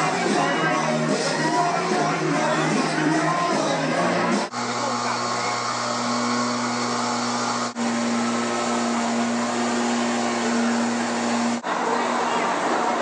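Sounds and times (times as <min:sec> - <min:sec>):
water pump humming: 0:04.3 - 0:12.2
hoses hissing spraying water: 0:04.4 - 0:11.7.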